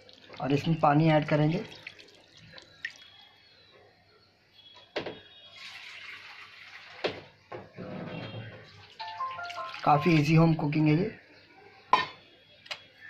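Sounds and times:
water poured into a pan: 0.0s - 3.1s, 5.5s - 7.4s, 8.7s - 10.3s.

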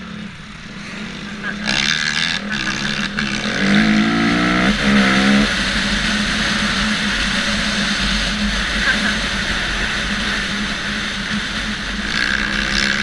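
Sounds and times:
dirt bike engine accelerating: 0.0s - 13.0s.

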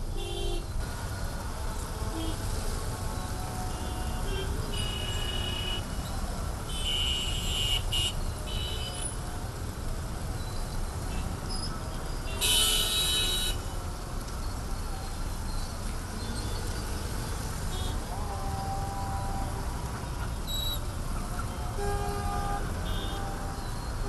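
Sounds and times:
traffic rumble on wet road: 0.0s - 24.0s
car horns honking: 0.2s - 0.8s, 3.6s - 6.1s, 6.7s - 9.2s, 12.2s - 13.8s, 17.6s - 24.0s.

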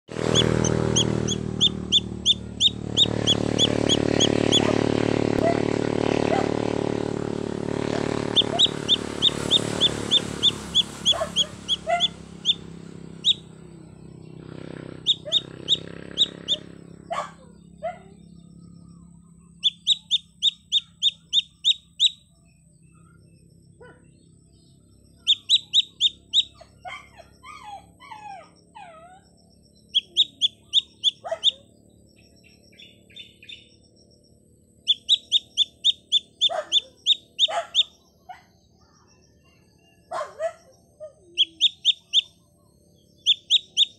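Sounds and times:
chick peeping in distress: 0.1s - 5.7s, 7.8s - 13.6s, 14.9s - 18.0s, 19.6s - 22.2s, 25.2s - 29.1s, 29.8s - 31.7s, 34.9s - 38.0s, 40.1s - 42.4s, 43.2s - 43.9s.

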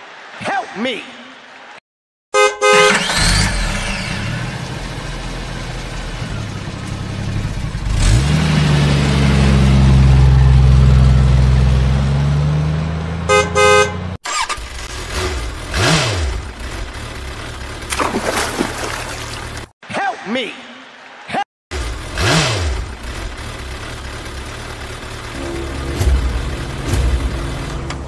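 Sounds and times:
vehicle horn: 2.3s - 3.4s, 13.3s - 14.2s, 25.3s - 27.9s
big engine running: 21.7s - 28.0s.

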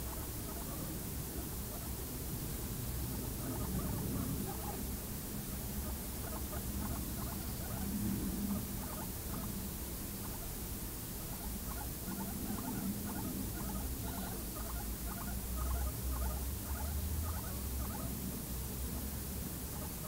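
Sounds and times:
guinea pigs feeding: 0.0s - 20.0s
low steady hum: 0.0s - 20.0s.

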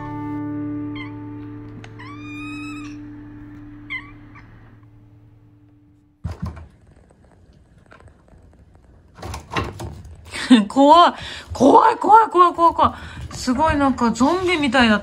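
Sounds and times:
cat meowing: 0.7s - 4.8s.

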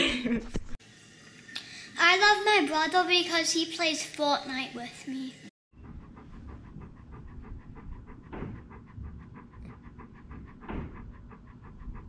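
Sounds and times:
dog panting: 5.8s - 12.0s.

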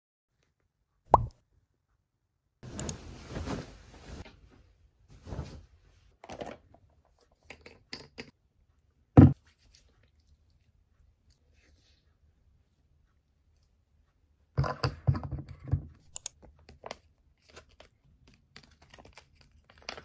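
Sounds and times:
rustling: 2.6s - 5.8s.

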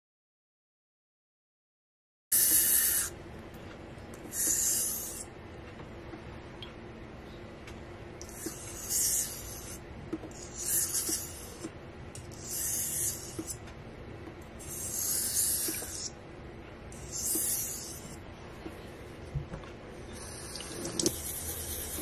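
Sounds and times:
razor scraping on whetstone: 10.4s - 11.7s, 12.3s - 13.6s, 14.6s - 16.1s, 20.2s - 22.0s.

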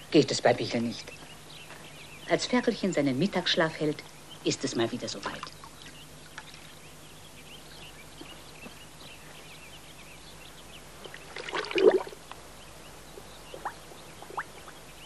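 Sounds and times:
water splashing and pouring: 11.3s - 12.2s.

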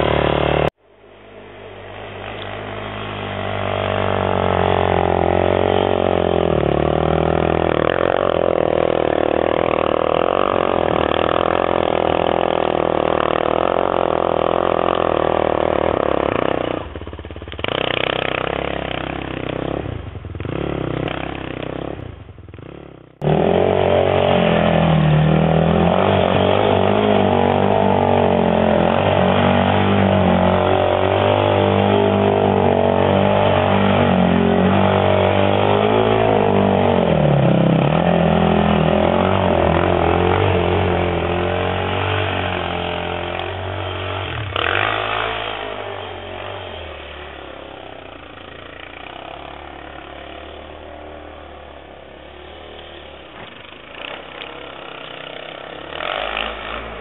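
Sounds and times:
quad engines revving: 0.0s - 57.0s.

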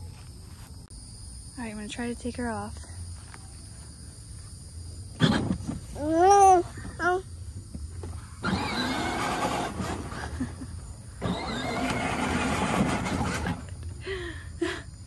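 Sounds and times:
toy car electric motors whirring: 8.4s - 10.2s, 11.2s - 13.7s.

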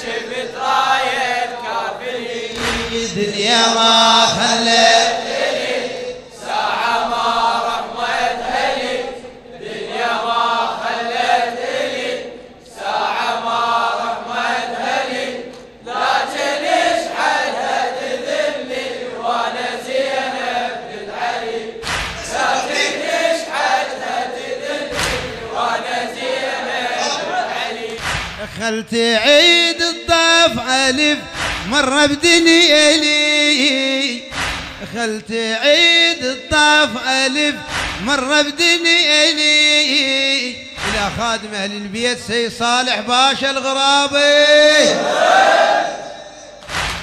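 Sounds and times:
voices chanting a lament: 0.0s - 46.8s
deep thumps: 31.2s - 32.2s, 34.3s - 35.0s.

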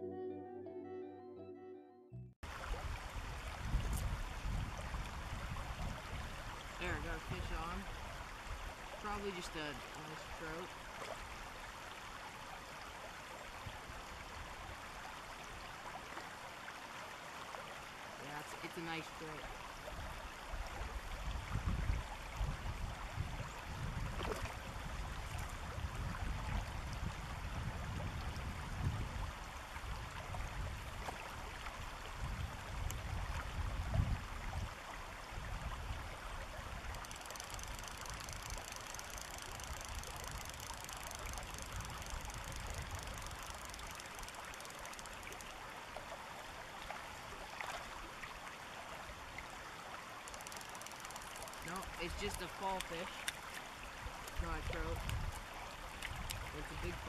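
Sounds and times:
faint fast high ticking: 36.8s - 45.6s, 50.2s - 53.5s.

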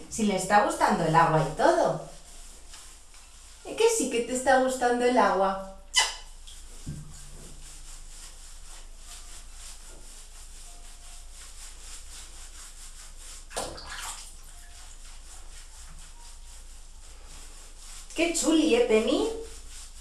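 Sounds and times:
hands rubbing wet fur: 0.0s - 20.0s
bathwater sloshing: 5.9s - 20.0s
water splash: 13.5s - 14.8s.

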